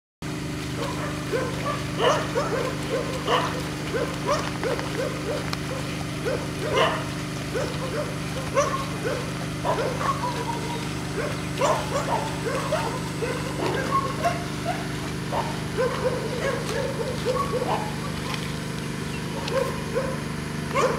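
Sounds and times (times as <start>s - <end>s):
steady low hum: 0.2s - 20.9s
dog yipping and whimpering: 0.8s - 5.4s, 6.2s - 18.0s
dog yelps: 0.8s - 18.2s, 19.2s - 20.2s.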